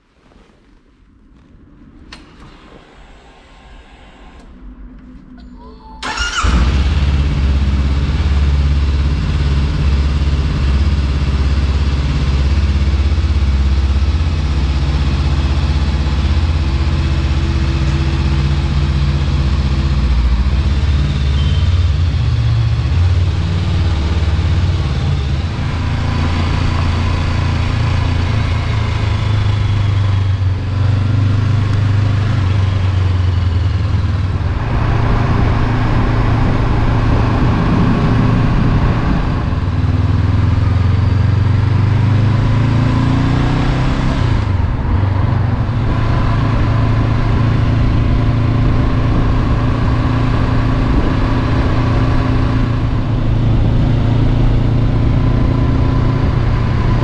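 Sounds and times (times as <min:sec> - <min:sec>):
motorcycle engine starting and running: 0:06.0 - 0:57.0.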